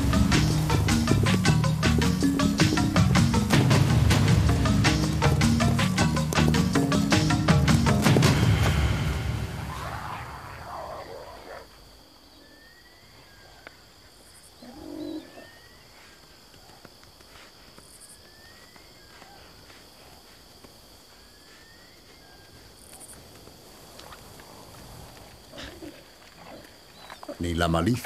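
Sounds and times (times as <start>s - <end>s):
insect drone: 0.0s - 28.0s
low animal call: 9.6s - 11.8s, 14.6s - 15.8s.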